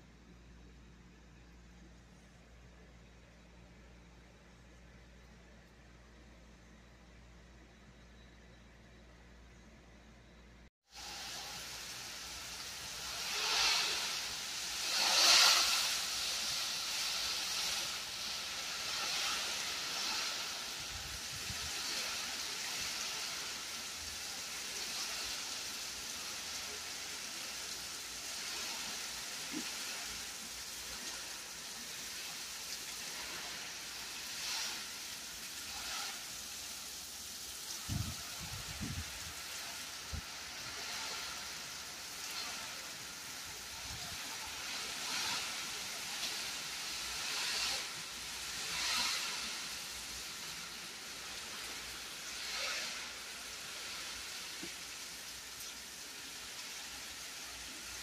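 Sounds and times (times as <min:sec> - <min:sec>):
heavy rain pouring: 0:10.8 - 0:58.0.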